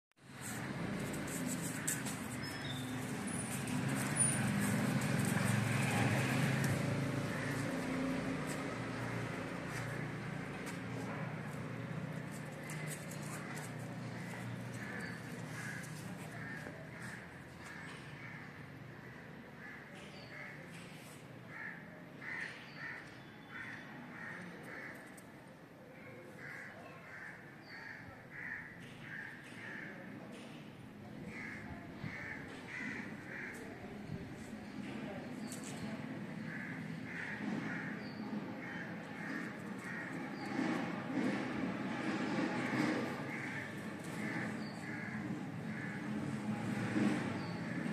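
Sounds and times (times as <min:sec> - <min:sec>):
crows cawing: 0:01.0 - 0:10.8, 0:12.4 - 0:20.7, 0:21.5 - 0:25.2, 0:26.2 - 0:30.0, 0:31.3 - 0:33.8, 0:36.4 - 0:40.5, 0:42.7 - 0:46.4.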